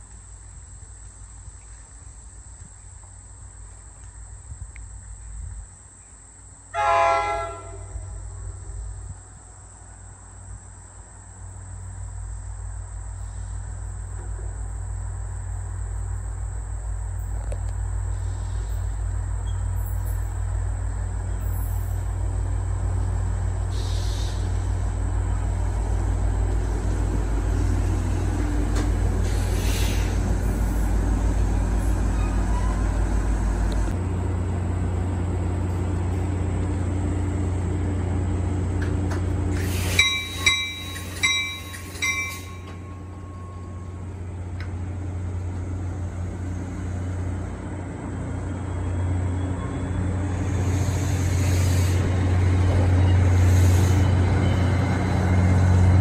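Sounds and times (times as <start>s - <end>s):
train rumbling in: 0.0s - 56.0s
bell ringing: 40.0s - 43.8s.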